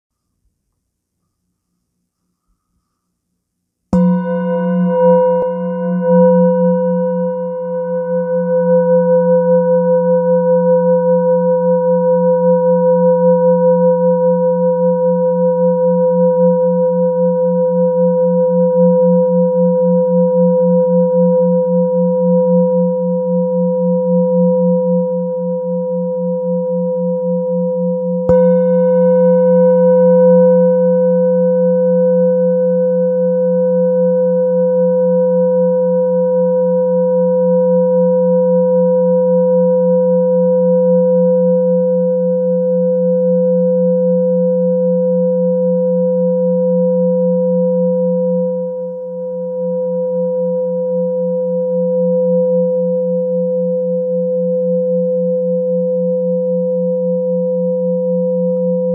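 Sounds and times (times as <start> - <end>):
singing bowl struck: 4.0 - 10.1, 28.2 - 32.8
metal singing bowl ringing: 4.0 - 14.3, 27.0 - 33.8.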